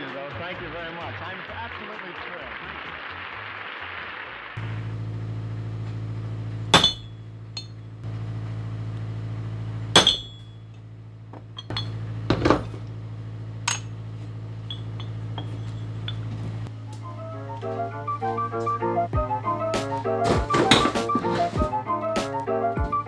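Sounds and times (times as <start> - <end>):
low hum: 4.6 - 23.0
hammer striking metal: 6.7 - 7.8, 10.0 - 10.6
metal flanges clinking: 11.6 - 12.8, 14.6 - 16.4.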